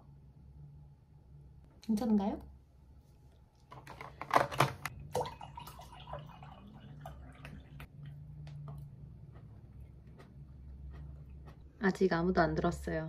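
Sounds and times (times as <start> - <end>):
water pouring into a mug: 5.0 - 7.9.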